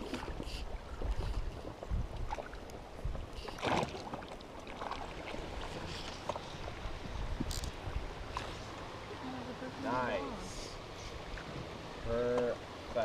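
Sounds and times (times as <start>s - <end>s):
low wind rumble: 0.0s - 12.9s
water lapping and splashing: 0.0s - 13.0s.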